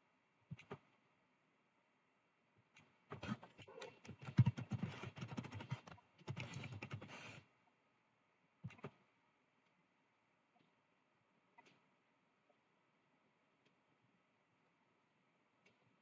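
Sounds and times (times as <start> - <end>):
computer keyboard typing: 3.6 - 7.4.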